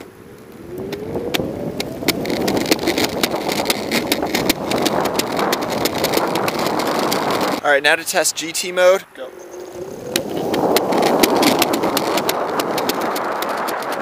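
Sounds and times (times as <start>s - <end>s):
wheels clicking over cracks: 0.0s - 7.6s, 9.2s - 14.0s
wheels rumbling on concrete: 0.0s - 14.0s
electric motors whining: 9.2s - 12.3s.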